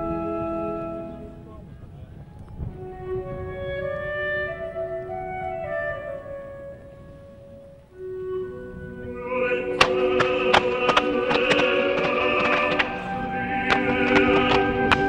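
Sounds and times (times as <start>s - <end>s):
classical music with woodwinds: 0.0s - 15.0s
sharp bangs: 9.7s - 15.0s.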